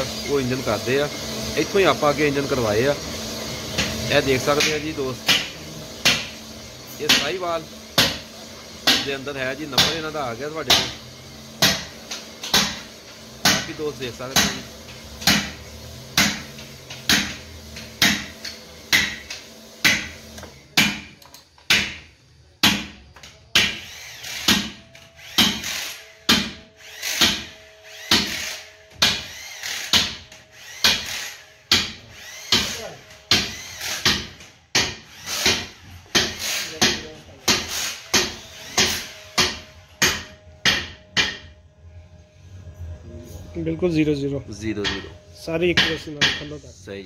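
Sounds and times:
faint motor hum: 23.0s - 47.0s.

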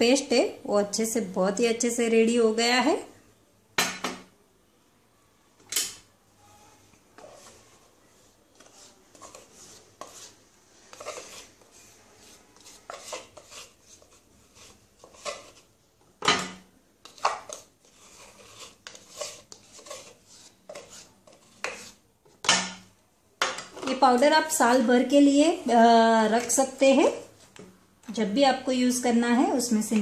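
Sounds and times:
spoon scraping plastic tub: 6.5s - 22.8s.

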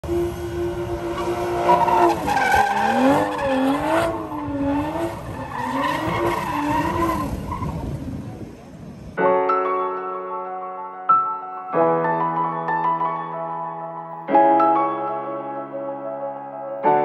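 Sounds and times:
car engine: 0.0s - 9.2s.

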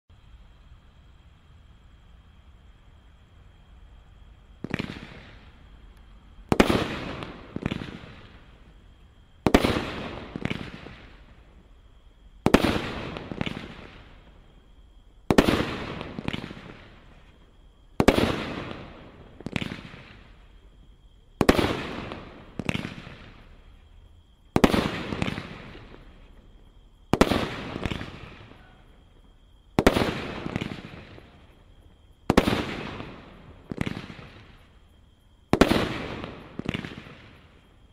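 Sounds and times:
firework launches and bursts: 4.6s - 5.8s, 6.4s - 11.6s, 12.4s - 14.6s, 15.2s - 20.6s, 21.3s - 23.8s, 24.5s - 26.5s, 27.1s - 28.6s, 29.7s - 31.6s, 32.2s - 34.7s, 35.5s - 37.7s.

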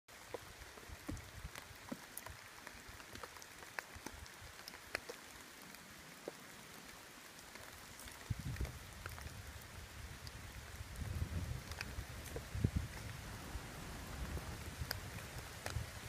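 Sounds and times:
steady rain: 0.1s - 16.0s.

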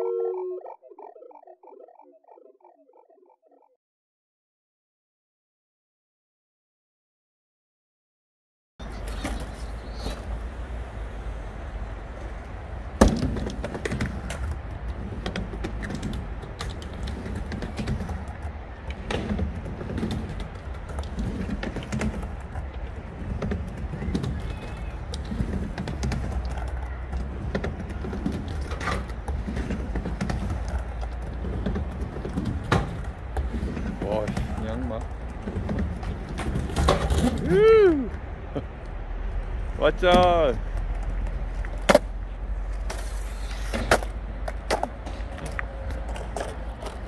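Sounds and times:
skateboard wheels rumbling on ramp: 8.8s - 47.0s
skateboard clack: 12.2s - 39.0s, 40.1s - 47.0s.

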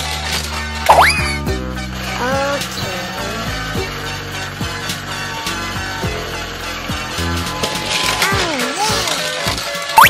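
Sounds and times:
upbeat background music: 0.0s - 10.0s.

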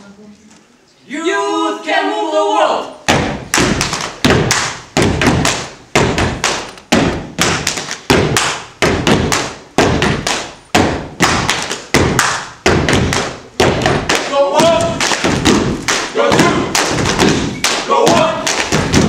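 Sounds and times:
feet stomping: 3.0s - 19.0s
hands clapping: 3.5s - 8.7s, 9.3s - 10.6s, 11.2s - 19.0s.

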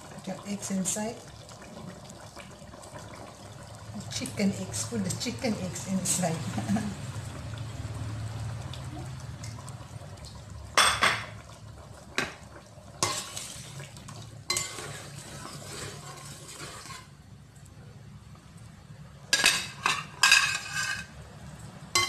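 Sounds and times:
spatula scraping metal pot: 13.0s - 13.8s, 14.5s - 17.1s, 19.8s - 21.1s.

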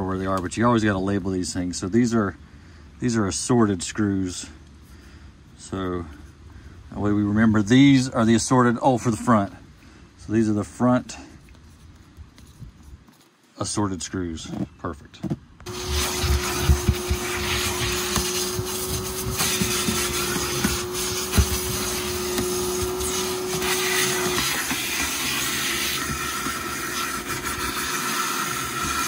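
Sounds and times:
debris rattling up hose: 15.6s - 29.0s
vacuum cleaner whine: 15.7s - 29.0s.

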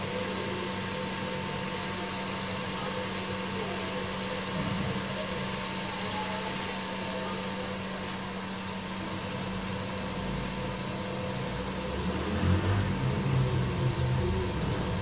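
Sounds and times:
food frying in a pot: 0.0s - 15.0s.

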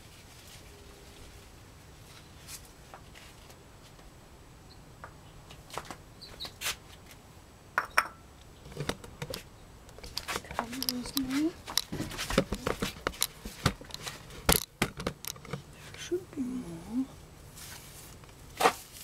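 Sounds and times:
soft clicks and rustles: 8.6s - 16.0s.

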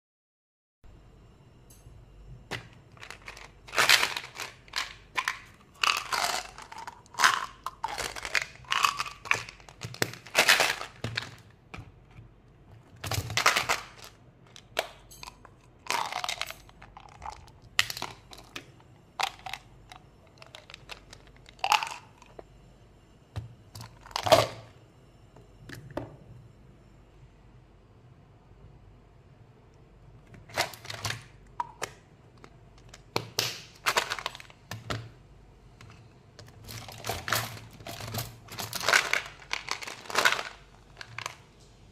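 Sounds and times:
plastic packaging crinkling: 2.9s - 11.5s, 13.0s - 14.2s, 20.3s - 22.3s, 30.5s - 31.4s, 32.8s - 34.6s, 36.4s - 41.4s.

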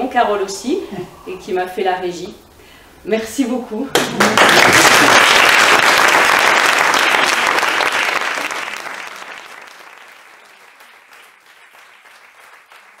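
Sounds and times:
audience applauding: 4.0s - 13.0s.

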